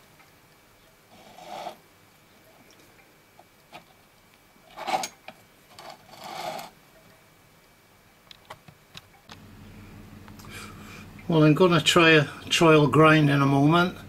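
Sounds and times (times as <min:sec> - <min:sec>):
steel plate scraping metal: 0:01.1 - 0:01.8, 0:04.7 - 0:06.8.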